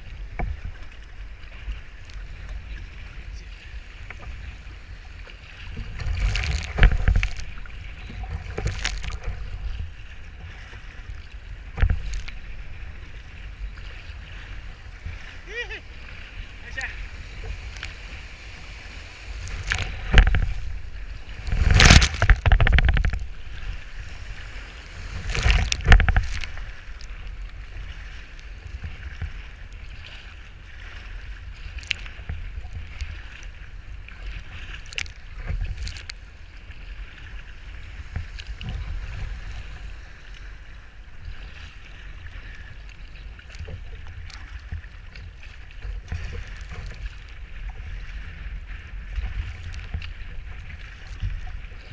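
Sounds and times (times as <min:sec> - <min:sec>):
wind buffeting microphone: 0:00.0 - 0:30.0
water sloshing and splashing: 0:00.0 - 0:51.9
waves washing over bow: 0:00.0 - 0:51.9.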